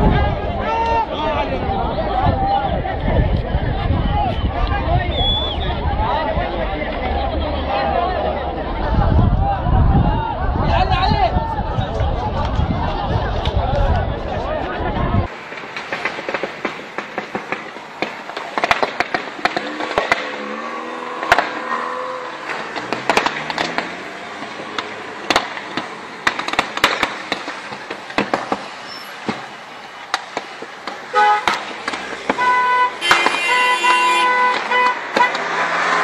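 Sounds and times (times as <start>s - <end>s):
road traffic: 0.0s - 36.0s
sharp cracks and pops: 15.4s - 21.7s, 22.4s - 35.6s
car horn honking: 31.1s - 31.6s, 32.3s - 35.6s.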